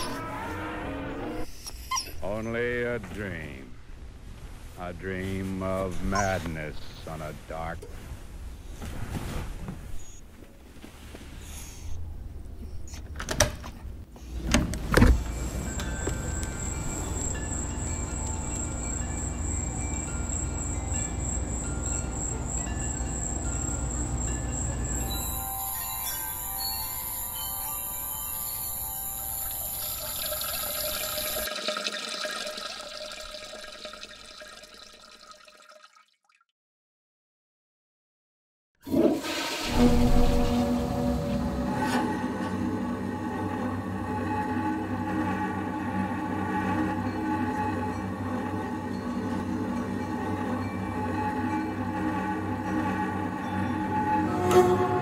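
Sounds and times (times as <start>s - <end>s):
toilet flushing: 29.3s - 36.1s, 38.8s - 49.7s.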